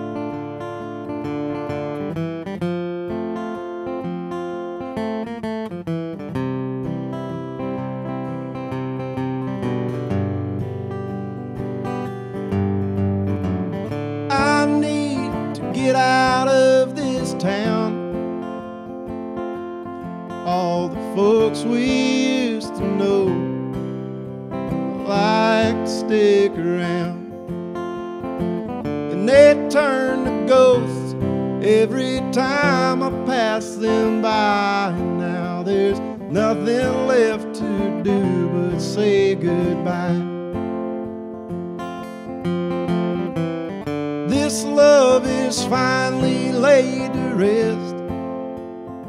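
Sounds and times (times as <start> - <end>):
acoustic guitar strummed: 0.0 - 49.0
man singing: 14.3 - 18.2, 20.4 - 23.6, 24.9 - 27.4, 29.0 - 40.4, 44.2 - 48.0.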